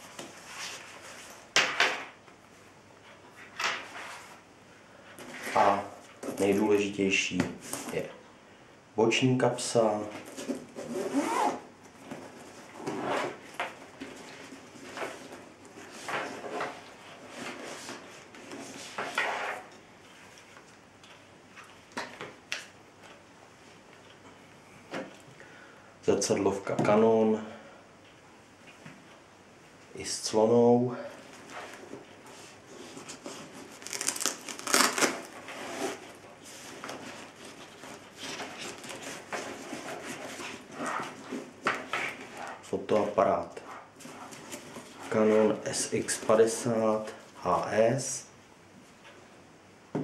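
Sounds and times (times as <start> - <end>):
fabric rustling and scraping: 0.0 - 1.6, 9.9 - 20.8, 31.2 - 42.8, 43.6 - 46.7
fabric bag rustling: 32.4 - 41.2.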